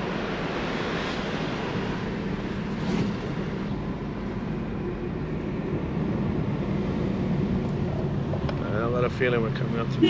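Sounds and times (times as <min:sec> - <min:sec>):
car cabin engine and road noise: 0:00.0 - 0:10.0.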